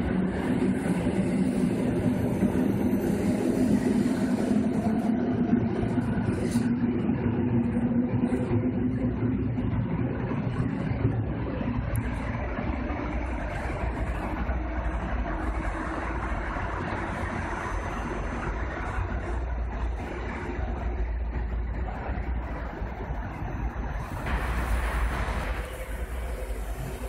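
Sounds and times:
train wheels rumbling: 0.0s - 27.0s.

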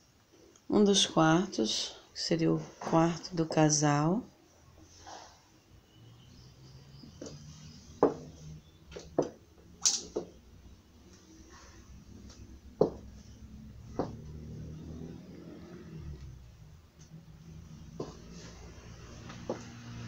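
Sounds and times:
sharp knocks and taps: 8.0s - 8.3s, 8.9s - 10.4s, 12.8s - 13.1s, 13.9s - 14.2s.

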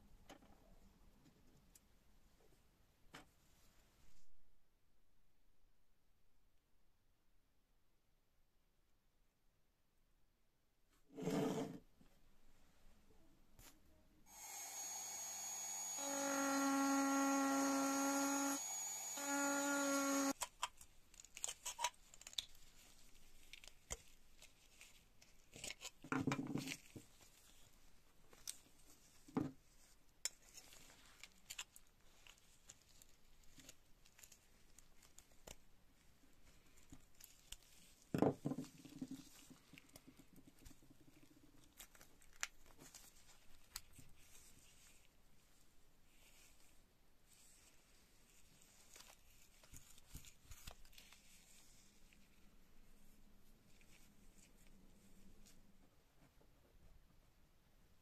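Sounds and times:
rotary tool grinding whine: 14.3s - 20.3s.

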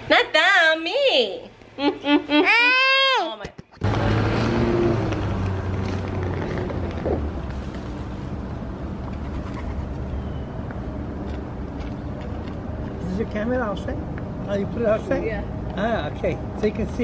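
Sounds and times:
hum of passing traffic: 0.0s - 17.0s
nearby vehicle engine: 3.8s - 16.9s.

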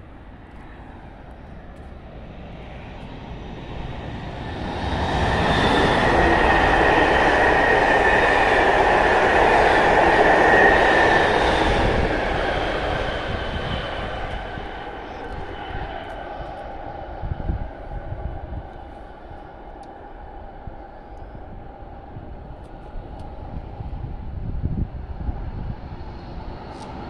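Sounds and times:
steady high whine: 0.0s - 27.0s
train wheels rushing on rails: 2.9s - 17.8s.

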